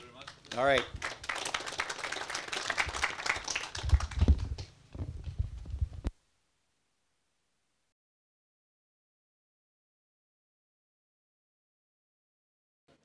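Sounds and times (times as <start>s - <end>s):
audience applauding: 0.2s - 4.7s.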